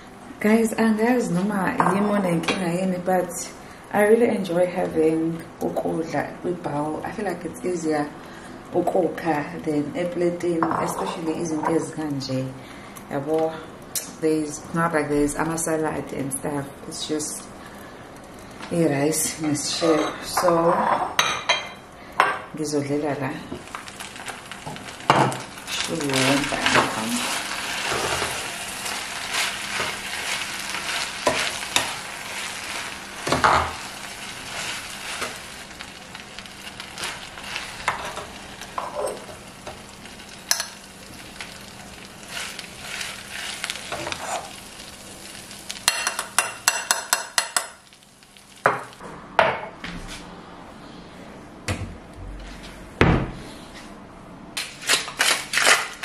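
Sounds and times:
metal spoon scraping a pot: 0:43.9 - 0:44.5.

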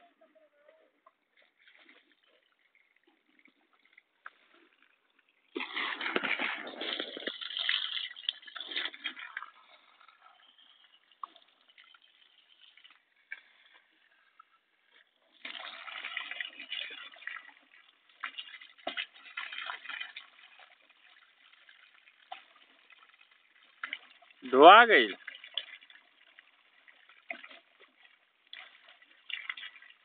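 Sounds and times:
water splashing against plastic: 0:00.6 - 0:30.0.

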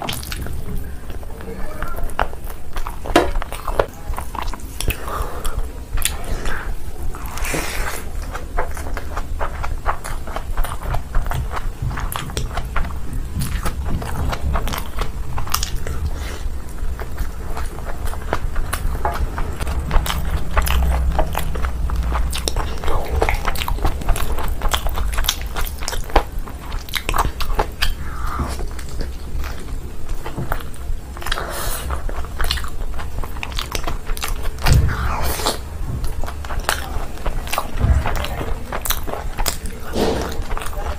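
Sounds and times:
mouth chewing food: 0:00.0 - 0:40.9
steady low hum: 0:00.0 - 0:40.9
low thud: 0:34.6 - 0:36.8.

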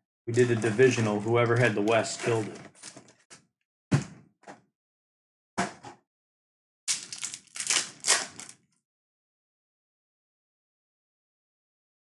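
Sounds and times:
plastic wrapper crinkling: 0:06.9 - 0:08.6.

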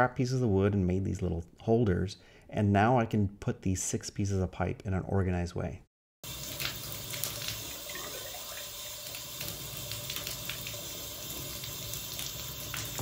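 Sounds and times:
faucet water splashing into tub: 0:06.2 - 0:13.0.

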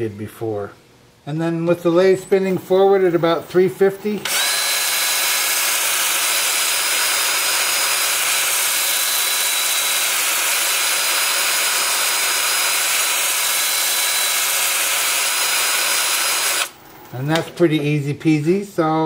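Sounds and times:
drill motor whine: 0:04.2 - 0:16.8.

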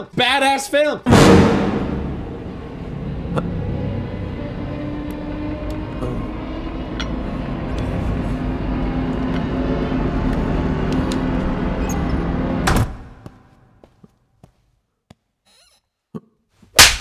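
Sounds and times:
loud sharp burst: 0:01.1 - 0:03.0
deep steady drone: 0:01.7 - 0:12.8.

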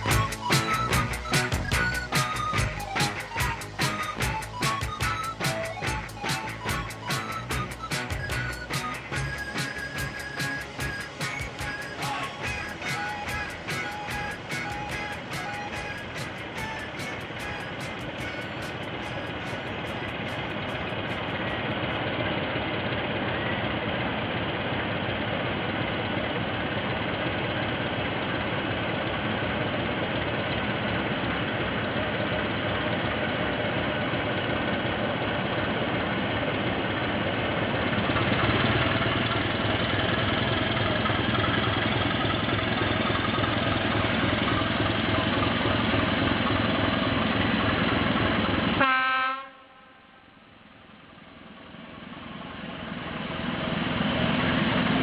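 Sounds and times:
diesel locomotive engine running: 0:00.0 - 0:55.0
train horn note: 0:48.8 - 0:50.6.

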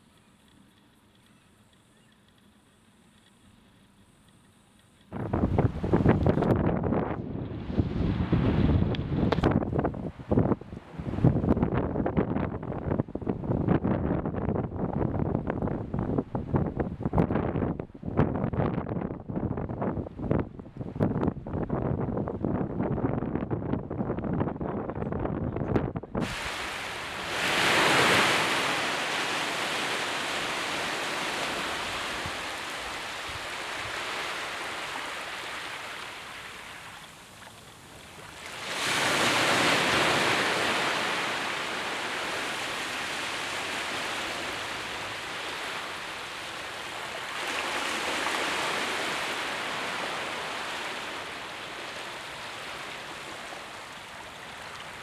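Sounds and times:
waves washing on shore: 0:26.2 - 0:55.0.

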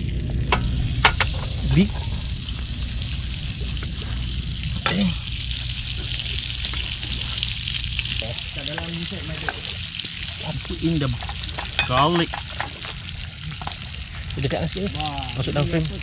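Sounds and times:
butter sizzling in a frying pan: 0:00.0 - 0:16.0.

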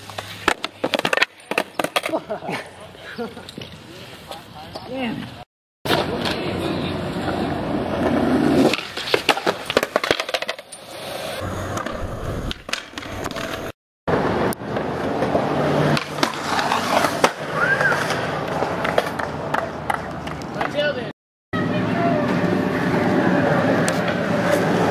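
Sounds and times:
skateboard clacking on ground: 0:00.0 - 0:02.2, 0:04.7 - 0:10.9, 0:14.6 - 0:21.0
skateboard wheels rolling on concrete: 0:00.0 - 0:24.9.

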